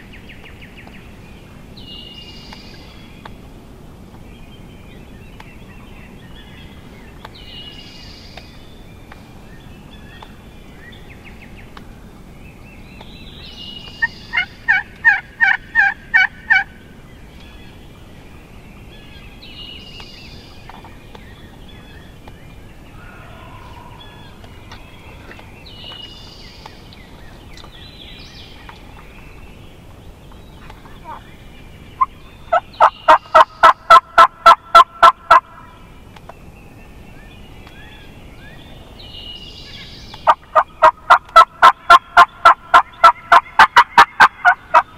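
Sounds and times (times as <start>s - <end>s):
songbirds singing faintly: 0.0s - 44.9s
wild turkey calling: 13.9s - 16.8s, 30.6s - 31.4s, 32.0s - 35.8s, 39.7s - 44.9s.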